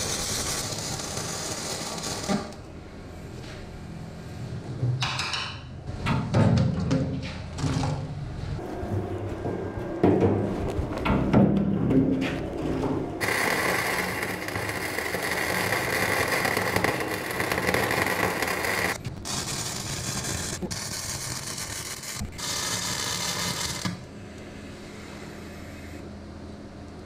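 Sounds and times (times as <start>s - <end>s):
welding arc hissing and crackling: 0.0s - 2.7s, 13.2s - 24.1s.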